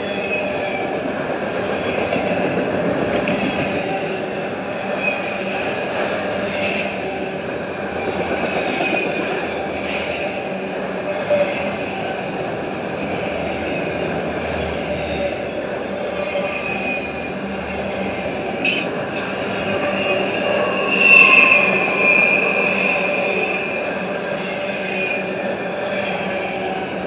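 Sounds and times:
train wheels rumbling on rail: 0:00.0 - 0:27.0
high wheel squeals: 0:14.8 - 0:26.6.

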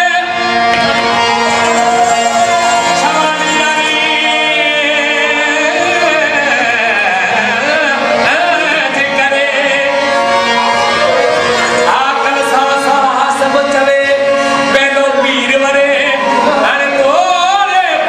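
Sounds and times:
instrument drone: 0:00.2 - 0:17.2
man singing folk song: 0:02.2 - 0:10.2, 0:11.2 - 0:18.0.

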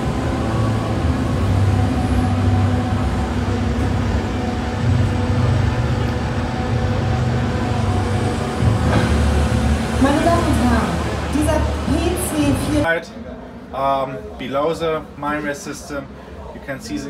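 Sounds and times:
excavator diesel engine droning: 0:00.0 - 0:12.9.

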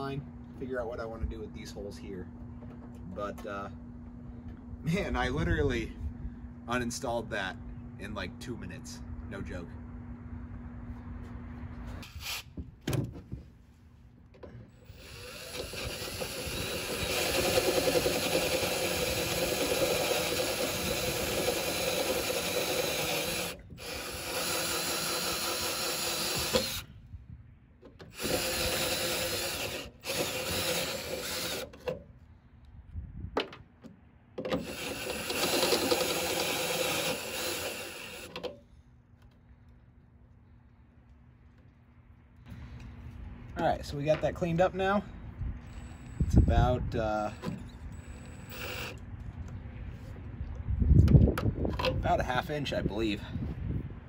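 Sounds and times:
cordless drill drilling metal: 0:12.0 - 0:12.5, 0:14.7 - 0:26.9, 0:28.0 - 0:31.9, 0:34.4 - 0:38.5, 0:47.2 - 0:49.0.

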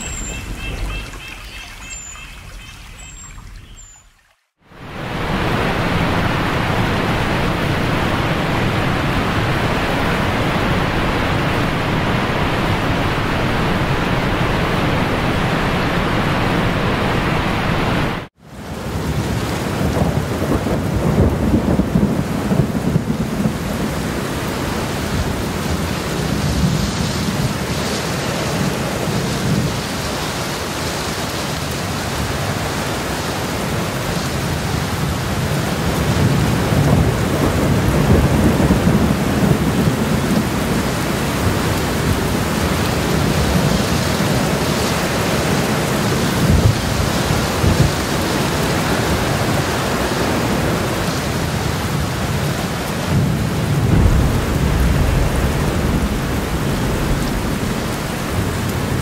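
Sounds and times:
heavy rain: 0:00.0 - 0:59.0
rolling thunder: 0:19.7 - 0:27.7, 0:36.1 - 0:44.7, 0:53.0 - 0:59.0.

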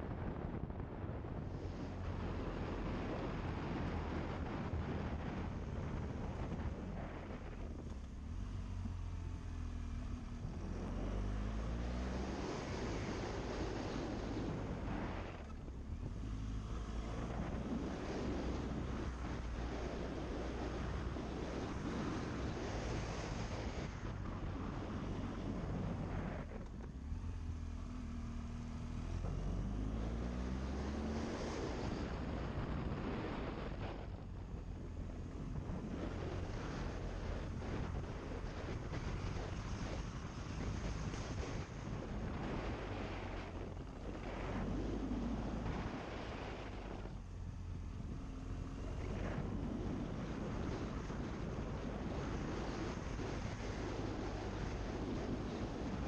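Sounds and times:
motorcycle engine rumble: 0:00.0 - 0:56.0
wind buffeting on microphone: 0:31.0 - 0:47.2.

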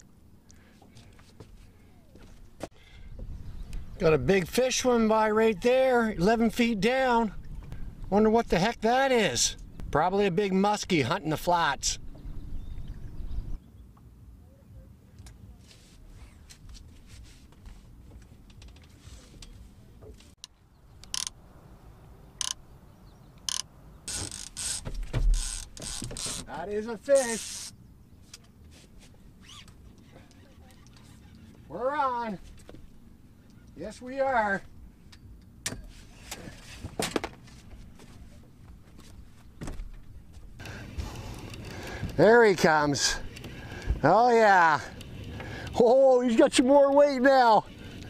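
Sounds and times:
fishing reel clicker ratcheting: 0:21.0 - 0:21.4.

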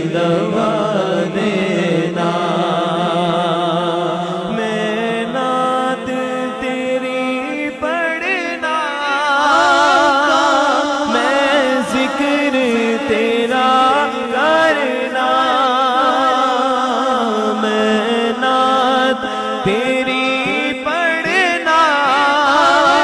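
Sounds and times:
man singing with echo: 0:00.0 - 0:23.0.

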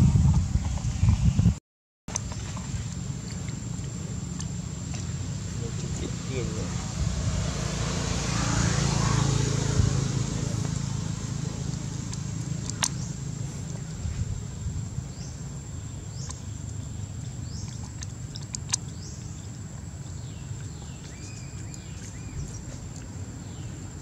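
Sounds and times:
low rumble: 0:02.3 - 0:16.4.

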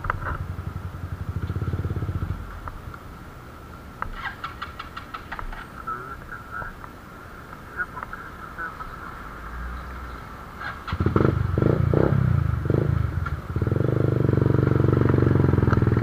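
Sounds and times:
motorcycle engine revving: 0:00.0 - 0:02.7, 0:09.6 - 0:16.0.

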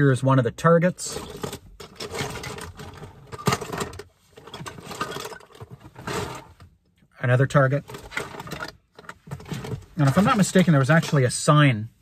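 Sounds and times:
plastic toy parts rummaged: 0:01.1 - 0:06.5, 0:07.9 - 0:10.6.

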